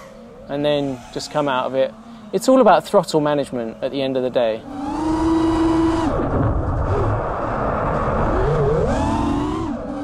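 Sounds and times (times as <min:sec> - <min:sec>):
drone motors whining: 0:00.0 - 0:10.0
rushing air noise: 0:05.0 - 0:09.9.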